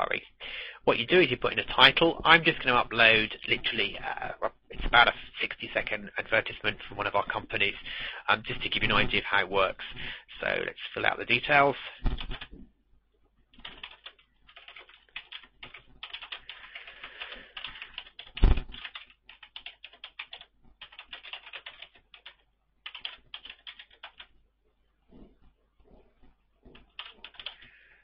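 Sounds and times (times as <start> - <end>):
loud thump: 12.0 - 12.4, 18.4 - 18.7
computer keyboard typing: 12.0 - 12.6, 13.5 - 24.3, 26.7 - 27.7.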